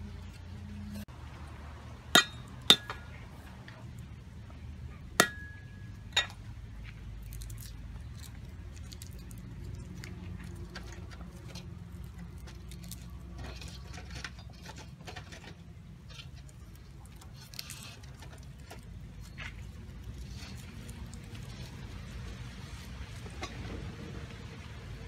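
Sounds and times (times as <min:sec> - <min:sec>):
garlic skins crackling: 0:05.1 - 0:23.4.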